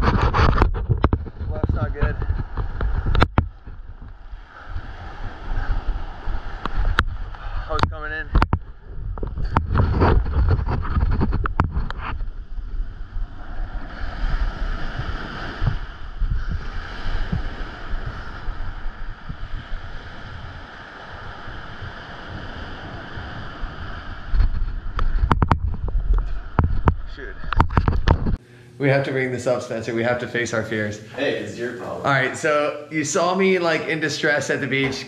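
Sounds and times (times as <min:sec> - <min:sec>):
surf washing on beach: 0:00.0 - 0:27.9
wind buffeting microphone: 0:00.0 - 0:28.4.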